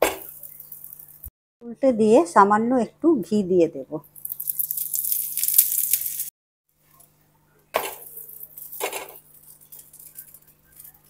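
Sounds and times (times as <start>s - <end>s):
ghee sizzling on hot griddle: 4.1s - 6.3s.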